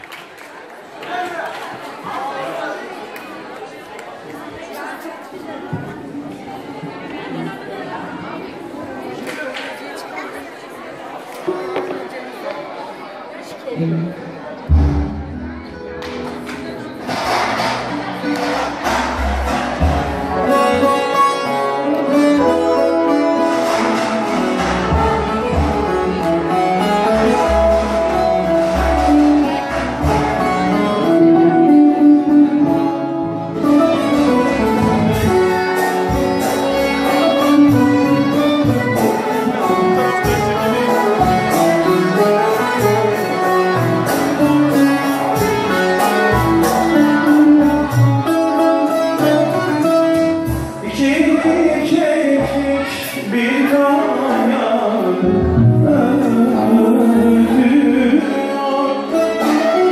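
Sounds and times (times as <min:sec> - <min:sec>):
keyboard-like instrument: 0:13.7 - 0:53.9
violin: 0:13.8 - 0:53.2.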